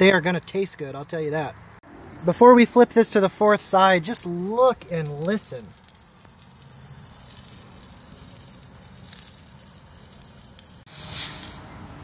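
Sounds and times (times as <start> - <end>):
steak sizzling on griddle: 1.9 - 12.0.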